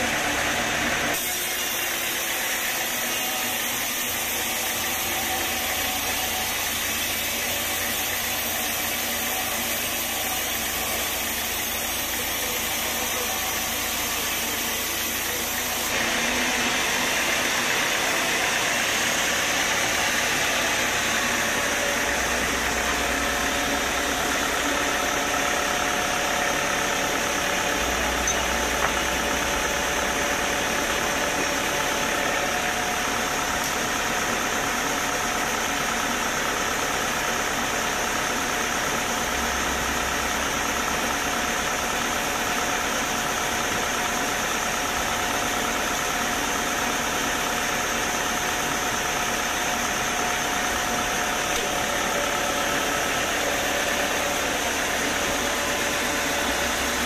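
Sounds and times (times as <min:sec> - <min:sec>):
band saw blade cutting log: 0:00.0 - 0:34.7, 0:45.4 - 0:57.0
engine droning: 0:05.4 - 0:41.4, 0:42.0 - 0:57.0.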